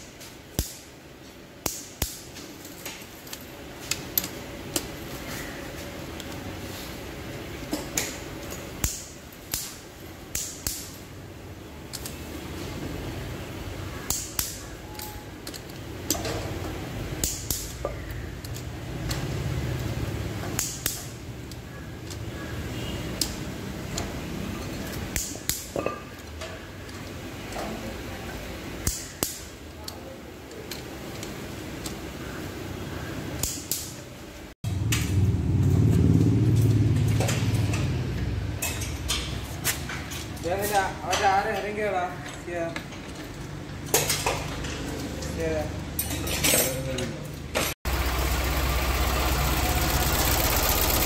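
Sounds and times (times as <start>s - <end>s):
torque wrench clicking: 17.2s - 19.2s
low mechanical rumble: 34.3s - 40.1s, 47.8s - 51.0s.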